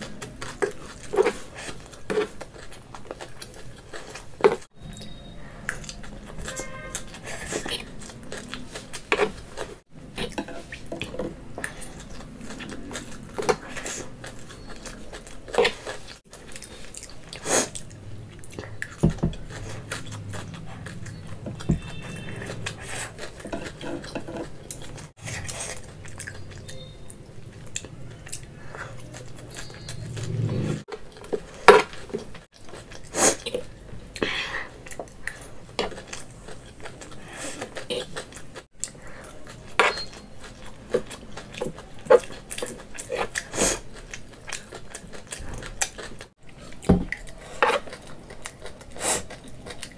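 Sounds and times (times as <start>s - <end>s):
chewing: 0.0s - 49.9s
cutlery scraping a plate: 10.2s - 11.3s, 21.4s - 25.0s, 39.7s - 40.3s.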